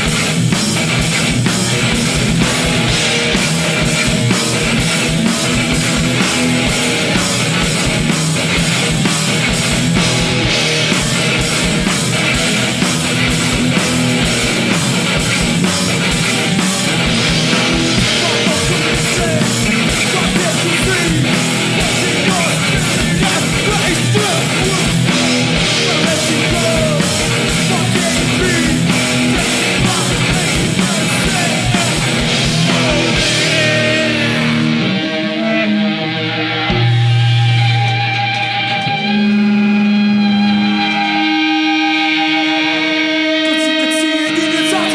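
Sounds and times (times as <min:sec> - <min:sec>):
rapid drumming: 0:00.0 - 0:35.2
bass guitar: 0:00.0 - 0:44.9
electric guitar: 0:00.0 - 0:44.9.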